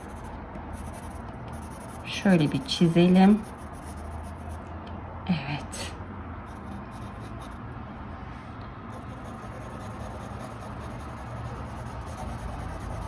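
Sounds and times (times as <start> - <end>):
pencil shading on paper: 0.0 - 4.6, 8.9 - 13.0.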